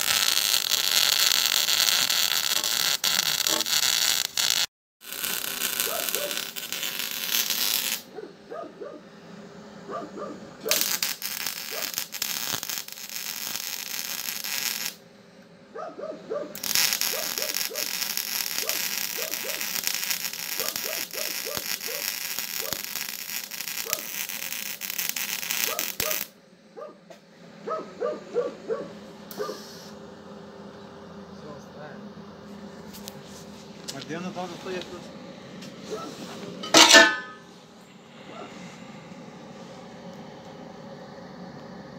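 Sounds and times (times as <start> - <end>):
welding arc crackling and hissing: 0.0 - 8.2, 10.1 - 15.0, 16.6 - 26.4, 29.3 - 30.0, 32.9 - 37.5.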